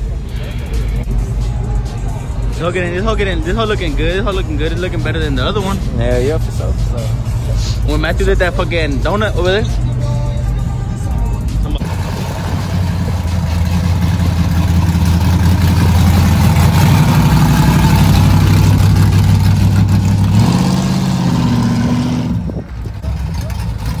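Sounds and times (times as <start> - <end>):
truck engine revving high: 11.4 - 24.0.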